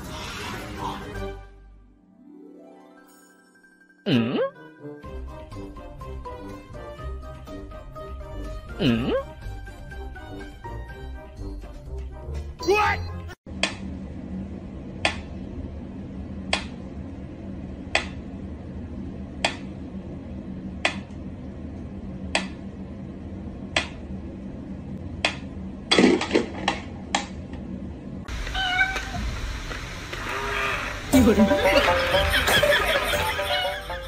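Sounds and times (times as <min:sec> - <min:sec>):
short high mewing call: 0:30.2 - 0:31.1.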